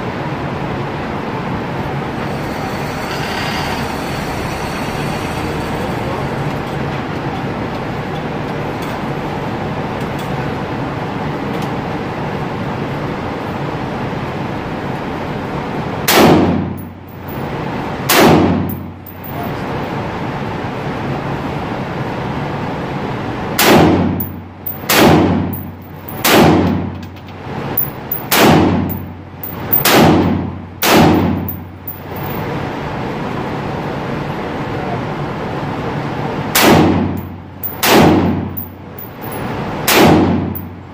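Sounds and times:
gunshots echoing indoors: 0:16.1 - 0:16.8, 0:18.1 - 0:18.8, 0:23.6 - 0:26.9, 0:28.1 - 0:31.7, 0:36.5 - 0:40.8.

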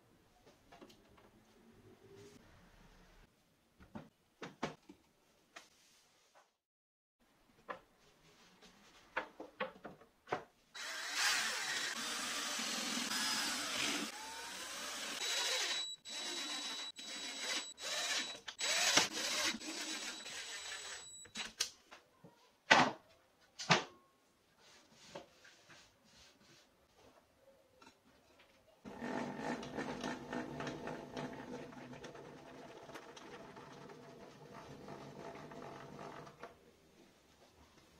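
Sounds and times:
power drill whining into wood: 0:10.8 - 0:21.4.

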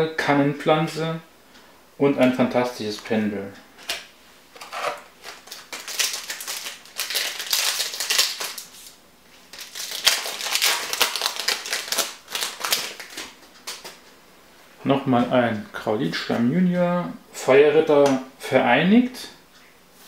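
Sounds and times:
cards and wrapper crackling: 0:04.6 - 0:14.0.

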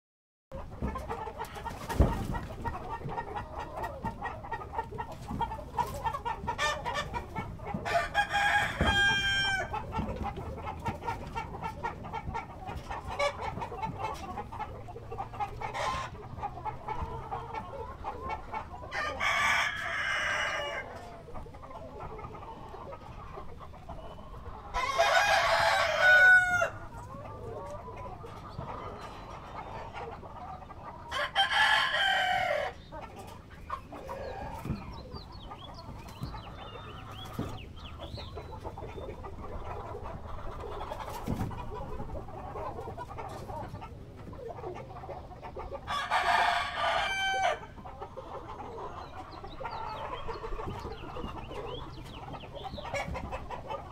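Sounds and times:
chickens clucking: 0:00.5 - 0:53.9
rooster crowing: 0:07.9 - 0:09.7, 0:24.8 - 0:26.8, 0:31.1 - 0:32.7, 0:45.9 - 0:47.7.

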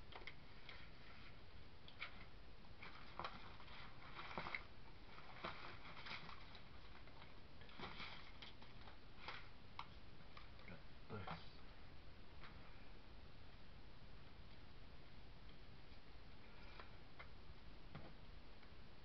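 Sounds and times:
steady low hiss: 0:00.0 - 0:19.0.

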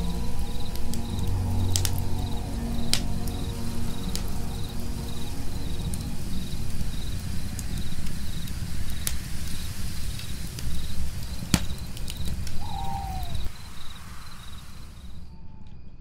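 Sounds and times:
low rumble: 0:00.0 - 0:10.6
campfire crackling and popping: 0:00.0 - 0:14.9
crickets chirping: 0:00.0 - 0:15.6
short falling animal call: 0:12.6 - 0:13.5.

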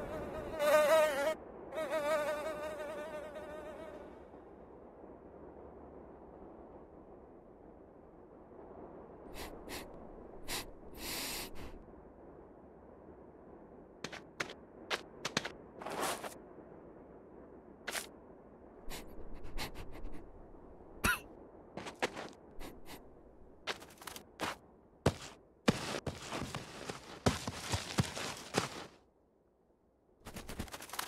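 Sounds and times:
steady low hiss: 0:00.0 - 0:23.8
rustles: 0:14.0 - 0:16.4, 0:21.8 - 0:29.0, 0:30.2 - 0:31.0.

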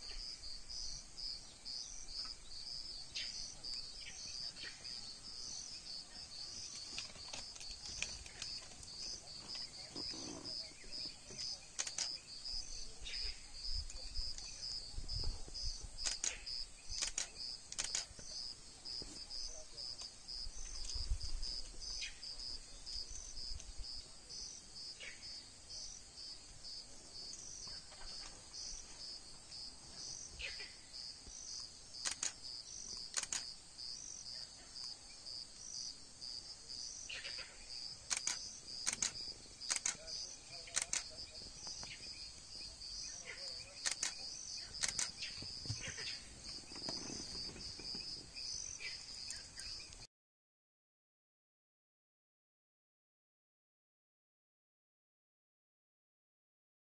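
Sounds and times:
insects chirping: 0:00.0 - 0:50.1
sharp clicks: 0:11.4 - 0:12.2, 0:16.0 - 0:18.3, 0:31.6 - 0:33.5, 0:38.1 - 0:42.0, 0:43.8 - 0:45.8.

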